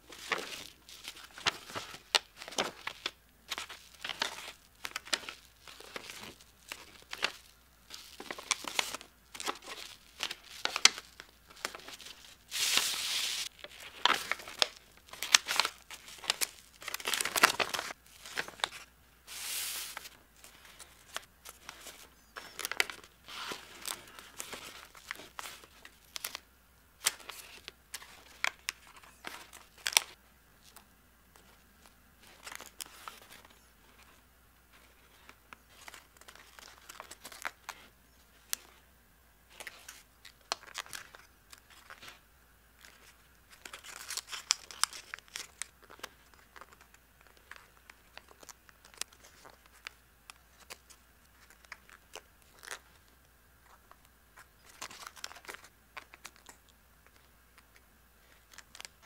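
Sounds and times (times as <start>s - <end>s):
paper crease crackles: 0.0s - 26.4s, 27.0s - 38.8s, 39.5s - 42.2s, 42.8s - 59.0s
paper rustling and crinkling: 0.0s - 26.4s, 27.0s - 38.8s, 39.5s - 42.2s, 42.8s - 59.0s
paper swishes: 12.5s - 13.5s, 19.3s - 20.2s.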